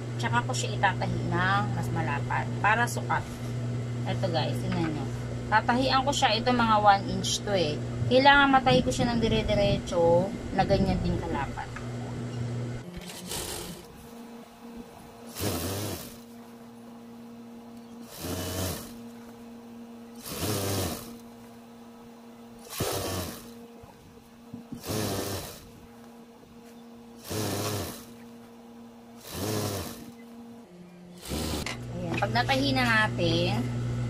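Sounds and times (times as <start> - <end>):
motor hum: 0.0 - 34.0
sewing machine stitching: 12.9 - 13.9, 15.3 - 16.2, 18.0 - 19.0, 20.2 - 21.2, 22.6 - 23.6, 24.8 - 25.6, 27.2 - 28.1, 29.2 - 30.1, 31.2 - 31.8.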